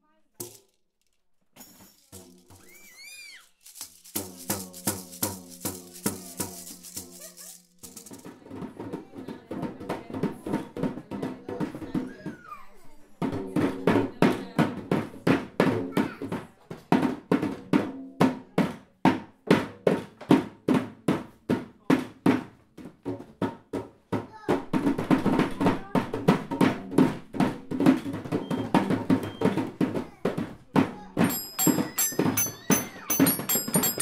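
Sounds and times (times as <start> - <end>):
children beating hand drums: 1.9 - 34.0
toy xylophone ringing: 31.2 - 34.0.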